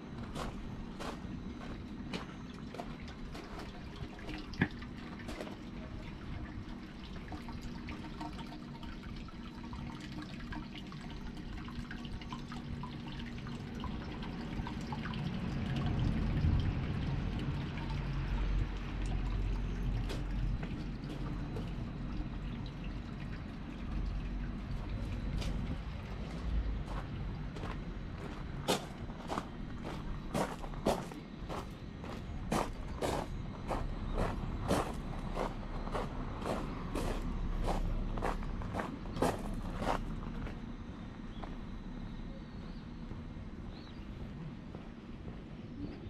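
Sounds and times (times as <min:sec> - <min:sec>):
water trickling and dripping: 0:01.6 - 0:31.2.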